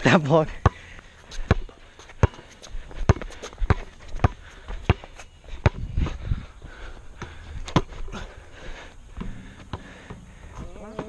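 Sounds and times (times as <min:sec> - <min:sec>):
basketball bouncing on asphalt: 0:00.5 - 0:06.2, 0:07.0 - 0:08.3, 0:09.1 - 0:11.0.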